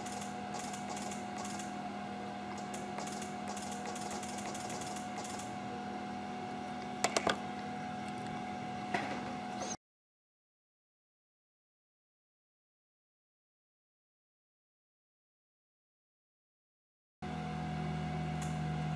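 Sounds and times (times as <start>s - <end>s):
steady low hum: 0.0s - 9.8s.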